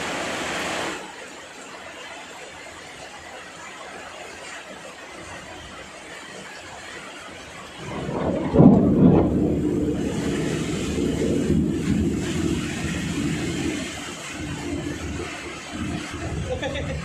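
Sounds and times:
rain falling: 0.0s - 17.0s
thunder rumbling: 7.7s - 17.0s.

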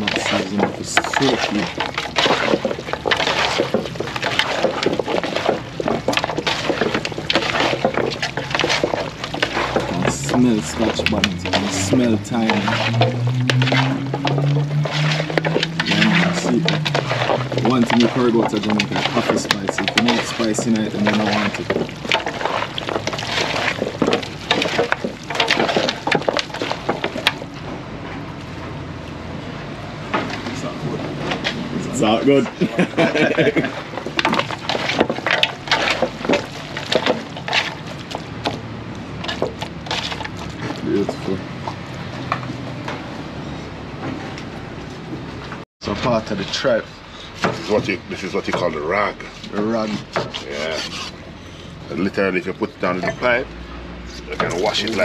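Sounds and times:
hands massaging raw meat: 0.0s - 27.6s
sharp knocks and clatters: 0.0s - 28.9s, 30.0s - 46.5s, 47.4s - 53.4s
liquid sloshing: 0.0s - 29.2s, 29.8s - 45.6s, 47.3s - 55.0s.

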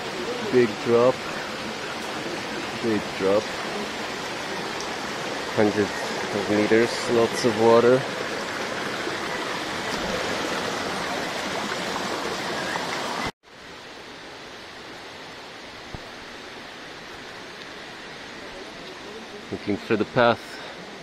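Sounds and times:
faint rush of water: 0.0s - 21.0s
stream rushing over rocks: 0.0s - 21.0s.

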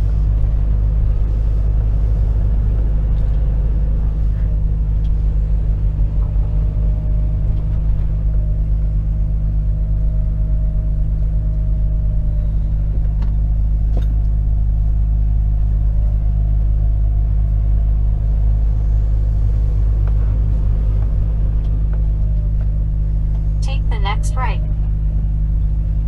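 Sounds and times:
diesel truck engine drone: 0.0s - 26.0s.

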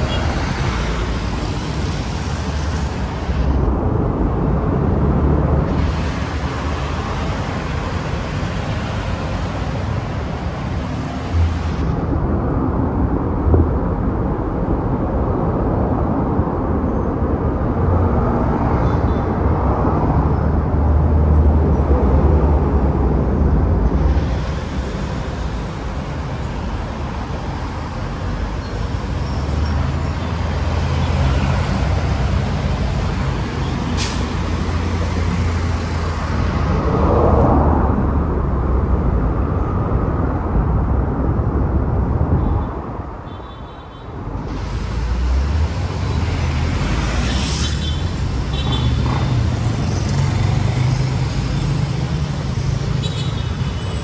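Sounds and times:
bus diesel engines rumbling: 0.0s - 54.0s
air brake hiss: 33.9s - 34.4s.

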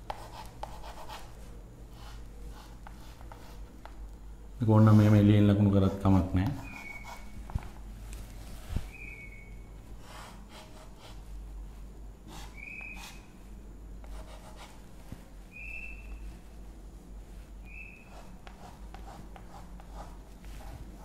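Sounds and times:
chalk scratching on blackboard: 0.1s - 4.0s, 6.4s - 7.8s, 10.0s - 11.3s, 12.3s - 13.2s, 14.0s - 14.8s, 17.8s - 21.0s
high-pitched chalk squeaks: 6.5s - 7.4s, 12.3s - 13.3s, 17.6s - 18.8s.

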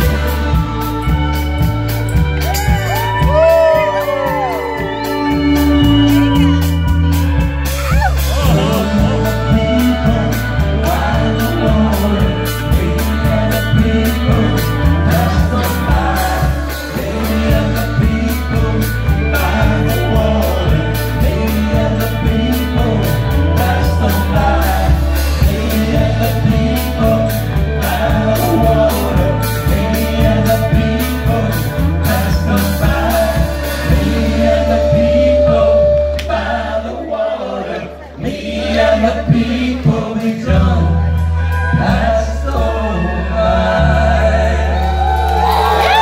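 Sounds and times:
live country-rock band: 0.0s - 46.0s
men singing: 0.0s - 46.0s.

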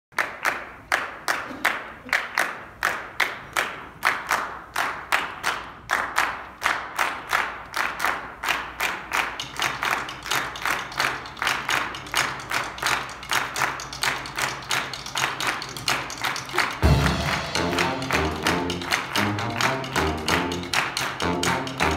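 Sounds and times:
hands clapping in rhythm: 0.1s - 21.9s
jazz band music: 16.8s - 21.9s.

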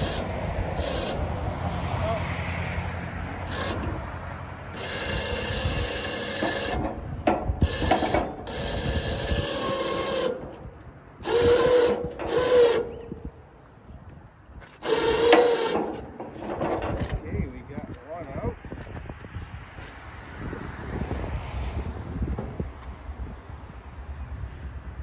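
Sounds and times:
crane winch whirring: 0.0s - 1.5s, 3.3s - 13.5s, 14.6s - 17.2s
cart scraping: 14.6s - 18.0s.

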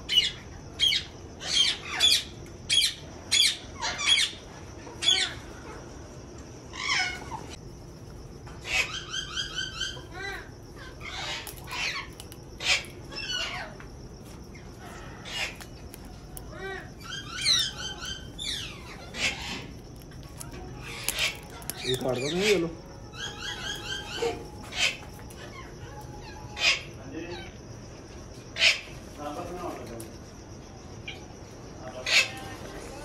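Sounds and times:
parrots calling: 0.1s - 5.5s, 6.7s - 7.6s, 8.6s - 27.6s, 28.6s - 29.0s, 32.0s - 32.5s.

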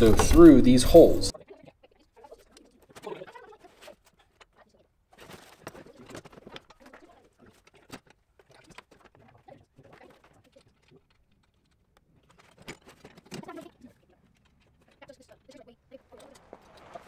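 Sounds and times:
clicks and knocks of metal parts: 5.2s - 17.0s.

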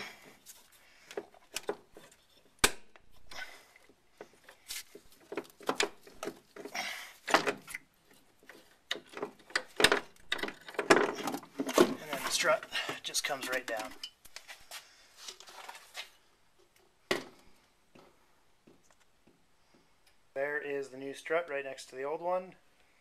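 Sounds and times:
metal clicks and rattles: 5.2s - 12.5s.

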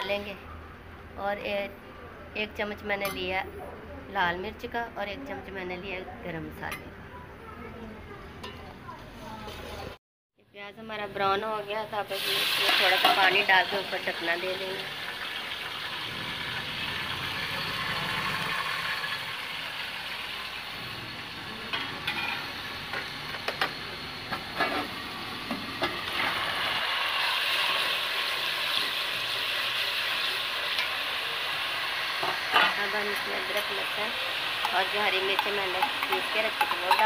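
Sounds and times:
onions sizzling in oil: 11.5s - 37.0s.

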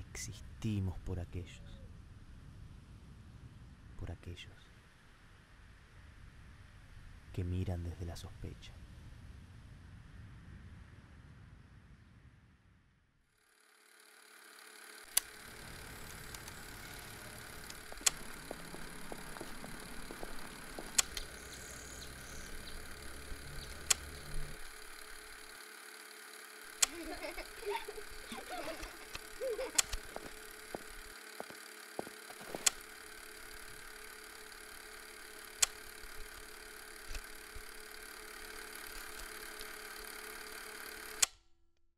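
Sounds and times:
faint hum: 0.0s - 41.3s
old film hiss: 14.3s - 41.2s
sharp clicks: 15.0s - 25.6s, 26.2s - 41.4s.

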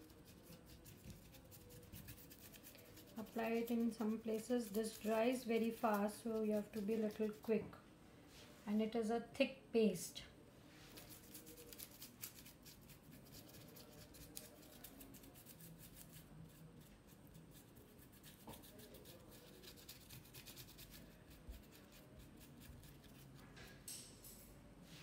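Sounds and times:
paintbrush dabbing on paper: 0.0s - 7.6s, 10.8s - 23.4s.

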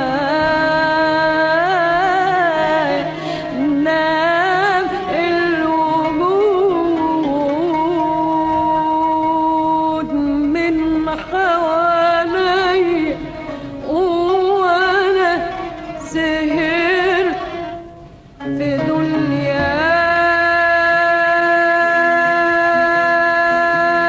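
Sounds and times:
melody with strong vibrato: 12.2s - 20.8s.

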